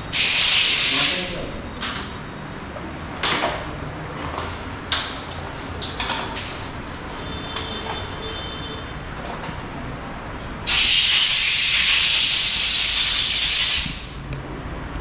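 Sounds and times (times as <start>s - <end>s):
compressed air gun blowing: 0.1s - 1.2s, 10.7s - 14.2s.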